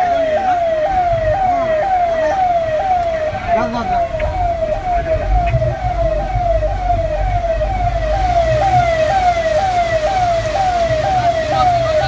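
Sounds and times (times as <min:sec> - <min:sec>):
siren wailing: 0:00.0 - 0:12.0
low rumble: 0:02.6 - 0:11.9.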